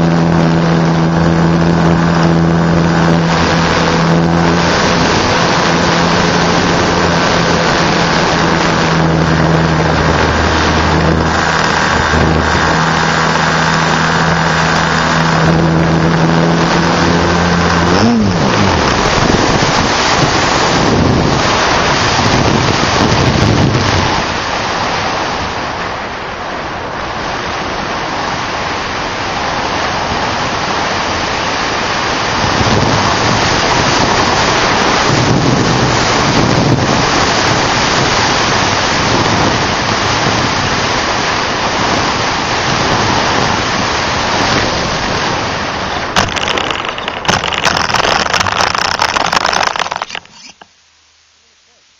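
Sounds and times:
model airplane motor droning: 0.0 - 22.1
wind noise on microphone: 0.0 - 50.7.

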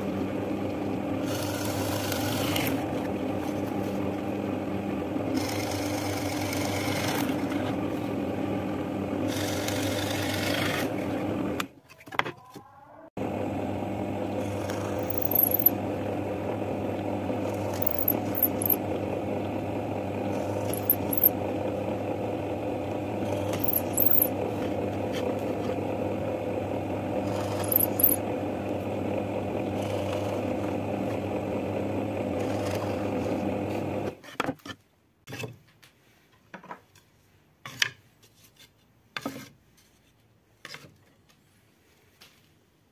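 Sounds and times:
drill press motor running: 0.0 - 11.7, 13.2 - 34.2
drill bit cutting wood: 1.2 - 2.8, 27.2 - 28.2.

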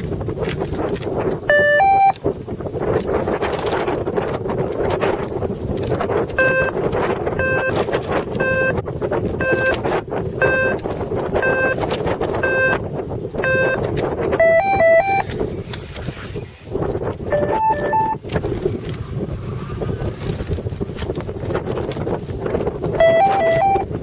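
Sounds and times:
wind buffeting microphone: 0.0 - 24.0
electronic beeps: 1.5 - 2.2, 6.4 - 6.8, 7.4 - 7.8, 8.4 - 8.8, 9.4 - 9.8, 10.4 - 10.8, 11.4 - 11.8, 12.4 - 12.8, 13.4 - 15.3, 17.3 - 18.2, 23.0 - 23.9.

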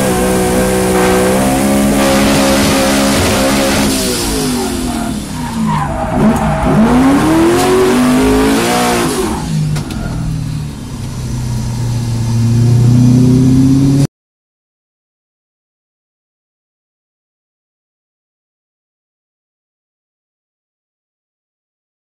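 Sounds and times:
car engine revving: 0.0 - 14.1.

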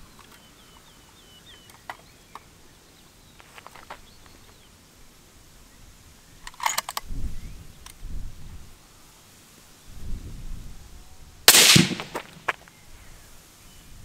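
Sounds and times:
small birds chirping: 0.0 - 5.0
rifle handling clicks: 6.4 - 7.1.

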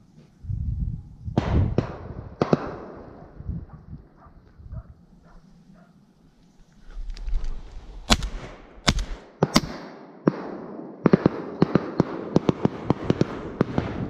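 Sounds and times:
shotgun shots: 1.4 - 3.2, 8.0 - 14.0.

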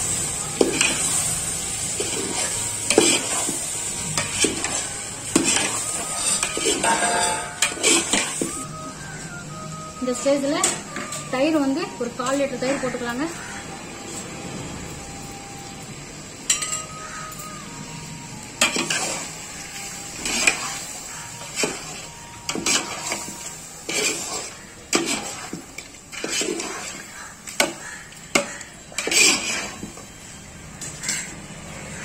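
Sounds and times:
metal spoon scraping a pot: 1.9 - 8.5, 18.6 - 19.3, 20.2 - 20.8, 21.4 - 29.9, 31.0 - 31.4.

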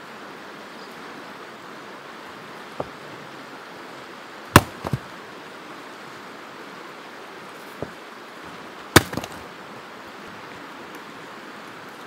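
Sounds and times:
steady background noise rush: 0.0 - 12.0
axe chopping wood: 4.6 - 5.1, 9.0 - 9.5.

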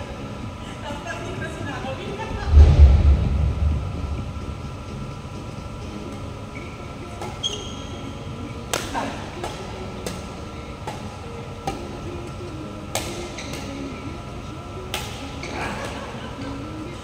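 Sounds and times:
hall hum: 2.3 - 6.1
rackets hitting shuttlecock: 12.9 - 13.7.

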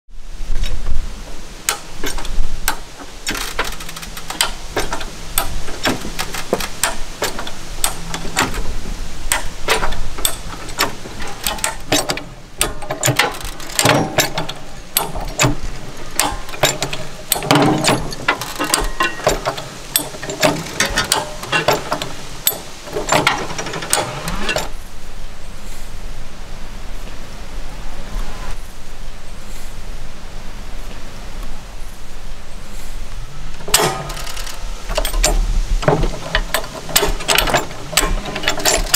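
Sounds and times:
farm jack ratcheting metallic clicks: 1.7 - 24.8, 33.6 - 38.9.

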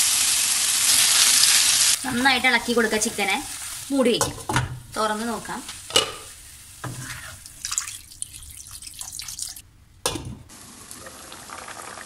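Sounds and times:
chicken sizzling in pan: 0.0 - 9.6
spatula stirring in pan: 2.0 - 9.6.

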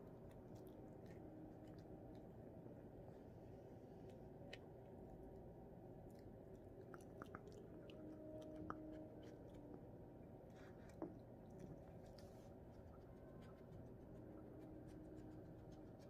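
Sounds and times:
puppy chewing treat: 0.1 - 2.6, 6.0 - 9.9.

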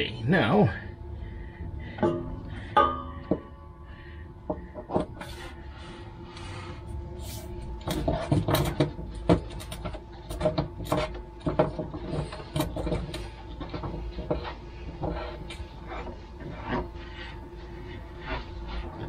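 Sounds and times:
knocks and scraping against metal: 1.9 - 3.7, 4.4 - 5.6, 7.7 - 19.0.

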